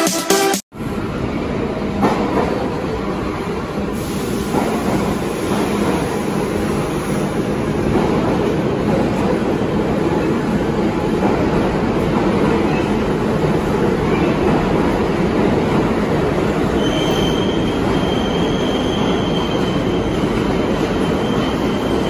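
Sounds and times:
train wheels rumbling on rail: 0.9s - 22.0s.

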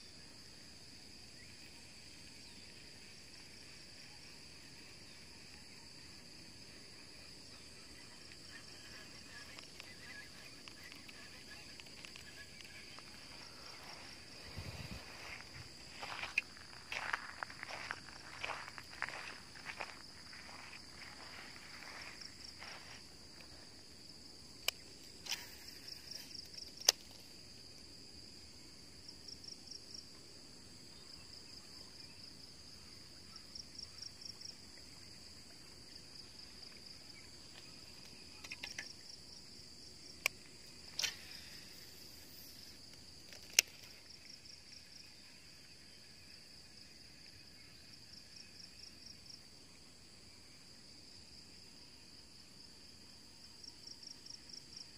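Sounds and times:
insect chirping pulses: 0.0s - 54.9s
insects droning: 0.0s - 54.9s
sharp clicks: 43.3s - 44.0s.

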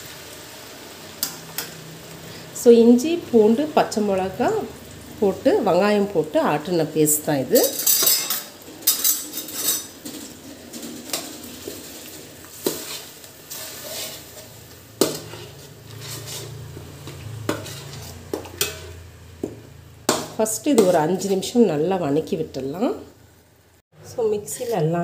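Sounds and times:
paste sizzling in oil: 0.0s - 22.4s
metal spoon clinking pot: 7.6s - 10.0s.

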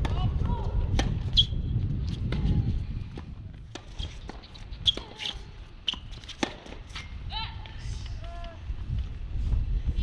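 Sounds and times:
tennis ball bouncing: 0.0s - 1.5s, 2.1s - 7.1s
wind rumble on microphone: 0.0s - 10.0s
tennis racket strikes: 3.7s - 6.8s.

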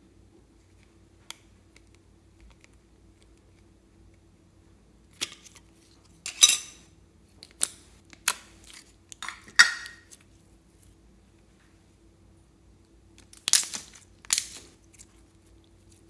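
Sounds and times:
sticky slime pops and crackles: 13.2s - 15.0s.

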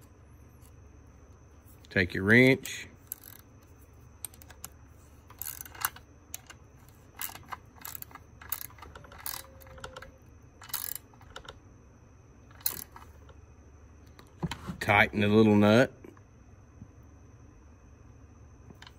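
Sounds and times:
wrench clicking on a nut: 3.1s - 3.4s, 7.2s - 11.5s, 12.6s - 13.0s.

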